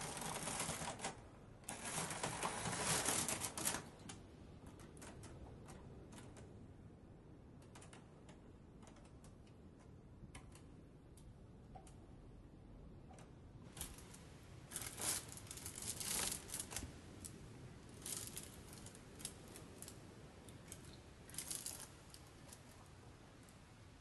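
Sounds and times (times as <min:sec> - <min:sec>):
hands crinkling material: 0:00.0 - 0:06.4, 0:13.7 - 0:23.0.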